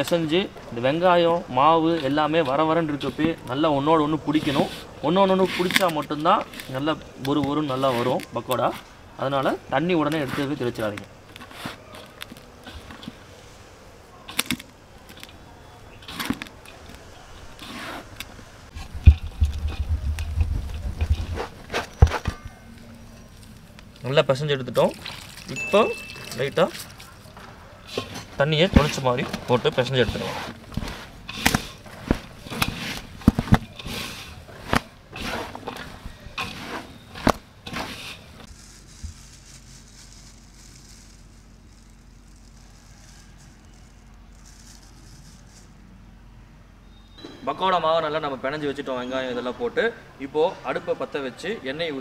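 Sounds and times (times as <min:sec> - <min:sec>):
hand mixing onions and flour: 0:00.0 - 0:13.6, 0:22.7 - 0:45.8
low thumps: 0:18.7 - 0:22.2.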